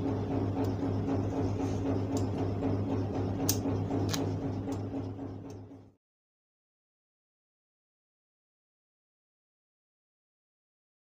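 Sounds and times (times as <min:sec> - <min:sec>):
low electrical hum: 0:00.0 - 0:06.0.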